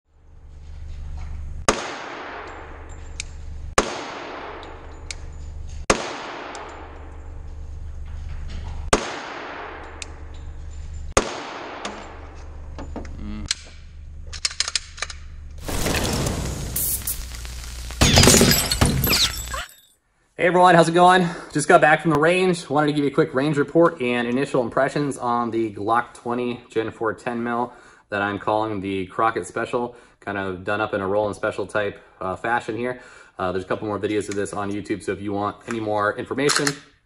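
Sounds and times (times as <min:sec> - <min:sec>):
pistol shots echoing indoors: 0:01.7 - 0:02.8, 0:03.8 - 0:04.9, 0:05.9 - 0:07.2, 0:08.9 - 0:10.2, 0:11.2 - 0:12.2.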